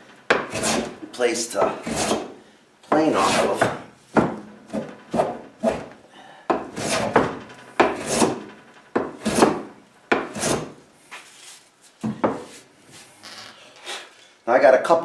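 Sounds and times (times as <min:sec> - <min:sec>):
hand plane cutting wood: 0:00.3 - 0:01.0, 0:01.6 - 0:02.4, 0:03.0 - 0:03.8, 0:04.7 - 0:05.9, 0:06.6 - 0:10.8.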